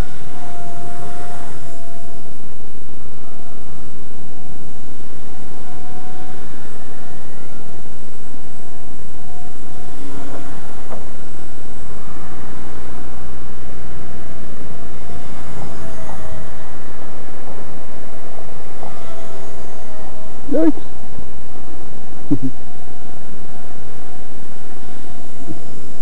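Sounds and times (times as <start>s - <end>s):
rc helicopter rotor whine: 0.0s - 26.0s
loud rumbling noise: 22.3s - 22.6s.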